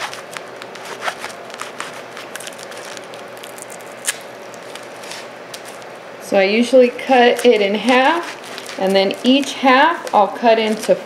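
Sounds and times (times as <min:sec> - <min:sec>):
knife cutting through fruit leather: 0:00.0 - 0:03.1
faint steady hum: 0:00.0 - 0:11.0
plastic wrap crinkling: 0:00.0 - 0:11.0.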